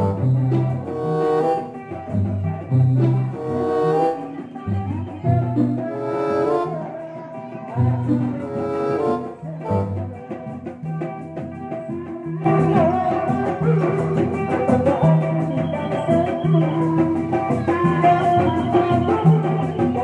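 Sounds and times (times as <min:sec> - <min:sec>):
melody over repeating bass line: 0:00.0 - 0:06.8.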